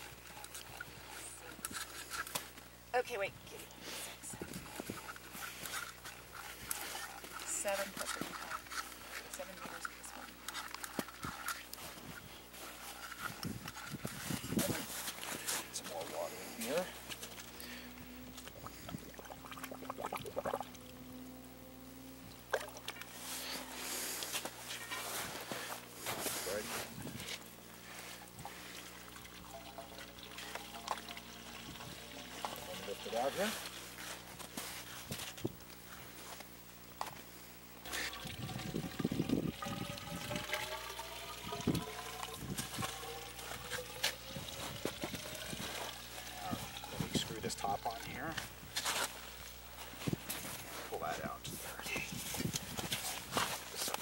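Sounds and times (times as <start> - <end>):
water scooped and poured: 27.8 - 33.9, 37.8 - 48.4.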